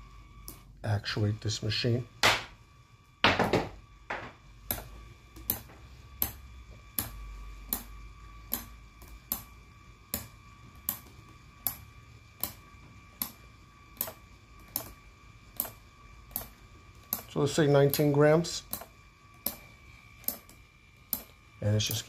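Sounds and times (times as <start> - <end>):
faint steady hum: 0.0 - 22.0
ratchet wrench clicking: 14.0 - 22.0.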